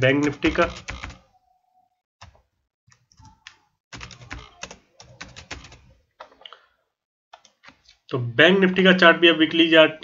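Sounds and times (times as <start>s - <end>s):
typing on computer keyboard: 0.2s - 1.2s, 2.2s - 5.9s.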